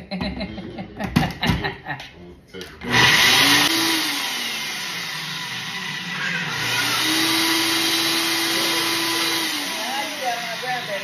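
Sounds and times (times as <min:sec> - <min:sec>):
blender motor whirring: 0:02.8 - 0:11.0.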